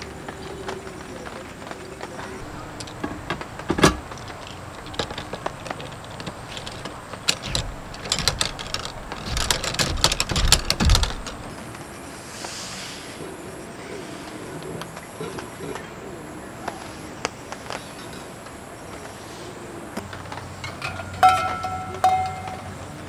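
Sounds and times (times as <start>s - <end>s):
metal clatter and thumps: 2.4s - 11.8s, 20.1s - 22.8s
metal gear clicking and rattling: 4.1s - 11.6s.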